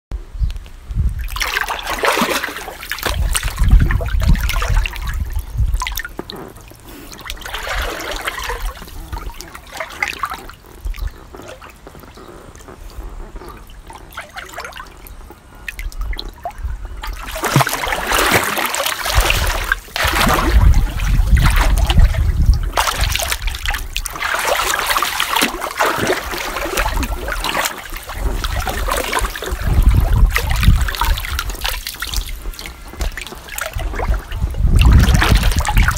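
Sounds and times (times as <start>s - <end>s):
water splashing in a pool: 1.0s - 35.9s.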